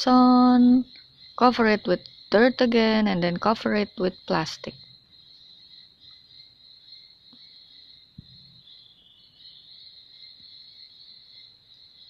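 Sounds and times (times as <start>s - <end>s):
high-pitched insect chorus: 0.0s - 12.0s
soft low thump: 8.2s - 8.6s.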